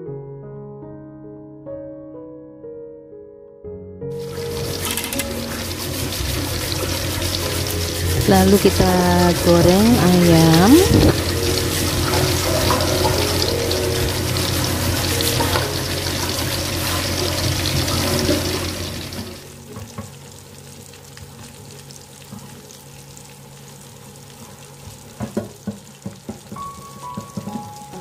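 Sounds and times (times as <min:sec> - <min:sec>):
chicken deep-frying in oil: 0:04.1 - 0:28.0.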